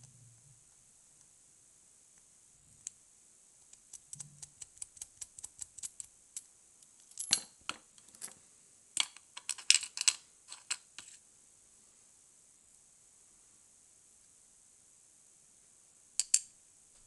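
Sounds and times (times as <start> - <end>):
small metal clicks and ticks: 3.6 - 7.3.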